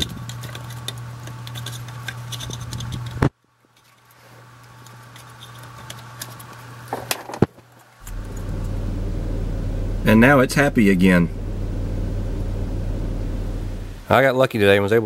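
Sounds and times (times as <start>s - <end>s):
steady low hum: 8.0s - 14.2s.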